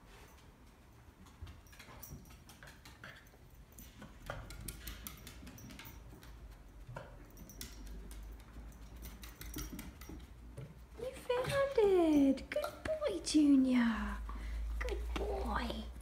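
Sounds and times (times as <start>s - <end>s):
dog claws clicking on floorboards: 1.2s - 13.2s.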